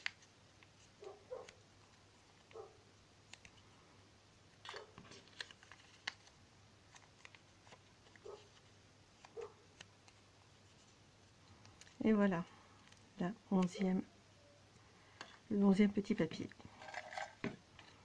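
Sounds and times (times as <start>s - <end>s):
faint steady hum: 0.0s - 18.0s
paper folding and creasing: 4.6s - 12.0s.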